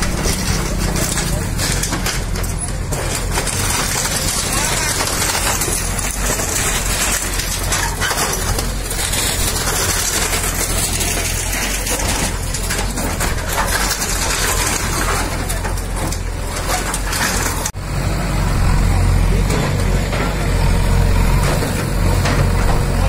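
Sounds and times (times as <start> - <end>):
rubble crunching and clattering: 0.0 - 17.8
diesel engine under load: 0.0 - 23.0.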